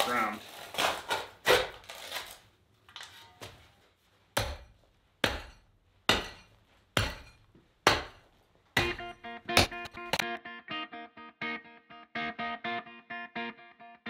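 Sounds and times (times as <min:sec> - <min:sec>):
guitar music: 0:08.8 - 0:14.0.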